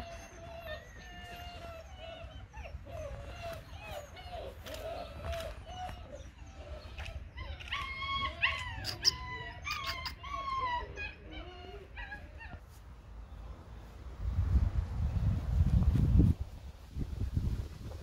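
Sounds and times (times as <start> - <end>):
puppy whimpering: 0.0 - 12.6.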